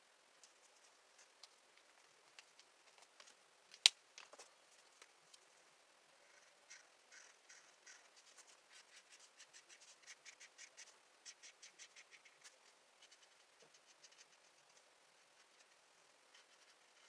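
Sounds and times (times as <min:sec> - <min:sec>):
pen scratching on paper: 0:06.4 - 0:17.0.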